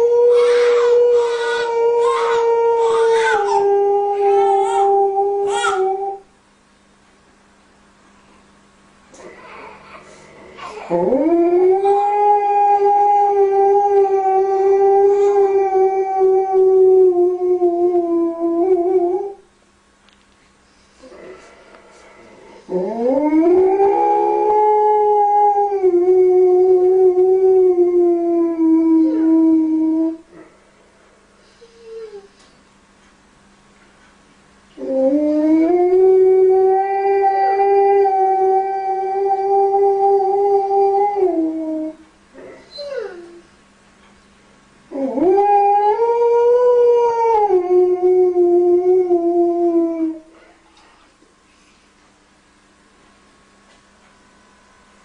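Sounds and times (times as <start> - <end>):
dog howling: 0.0 - 6.2, 9.2 - 19.4, 22.7 - 30.2, 42.6 - 43.4, 44.9 - 50.3.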